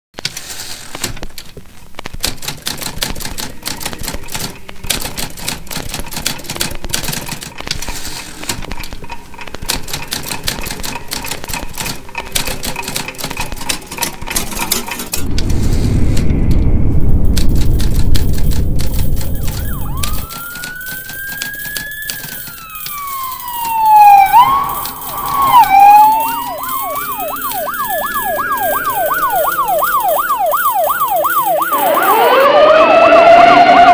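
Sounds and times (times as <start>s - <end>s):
typewriter keys clacking: 2.1s - 15.1s, 17.4s - 32.4s
loud low rumble: 15.2s - 20.3s
emergency siren wailing: 15.2s - 33.9s.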